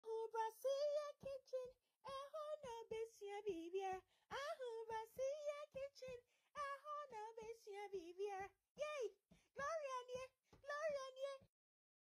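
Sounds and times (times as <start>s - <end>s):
high-pitched voice singing: 0.0s - 11.5s.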